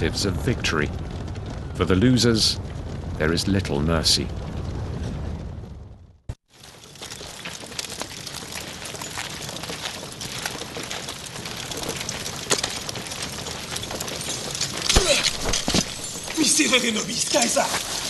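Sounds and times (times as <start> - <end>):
crackling hiss with sharp clicks: 6.5 - 18.0.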